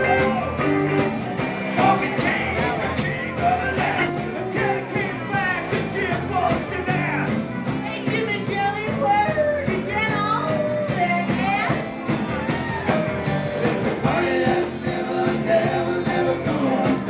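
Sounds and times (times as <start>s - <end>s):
electric guitar: 0.0s - 17.0s
rock band playing: 0.0s - 17.0s
person singing lead vocals: 1.4s - 11.2s, 13.6s - 17.0s.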